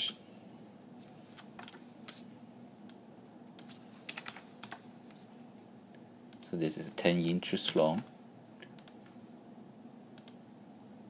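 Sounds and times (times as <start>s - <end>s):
faint steady hum: 0.0s - 11.0s
keyboard keys tapping: 4.1s - 4.8s.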